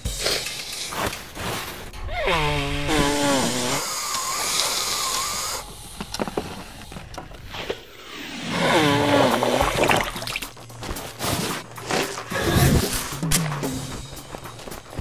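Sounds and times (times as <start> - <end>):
wheezing nasal breath hiss: 0.0 - 9.6.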